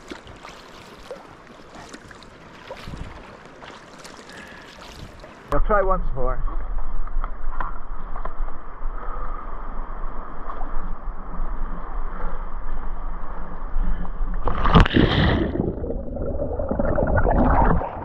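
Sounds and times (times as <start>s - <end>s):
light water noise: 0.0s - 18.0s
wind on microphone: 2.8s - 3.2s
big splash: 14.5s - 18.0s.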